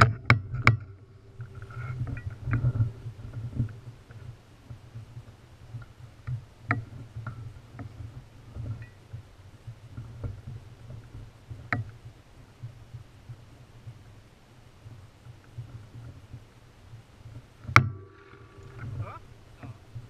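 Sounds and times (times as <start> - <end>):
bike rolling on gravel: 0.0 - 7.6, 17.1 - 20.0
clicks and rattles of bike and stones: 0.0 - 20.0.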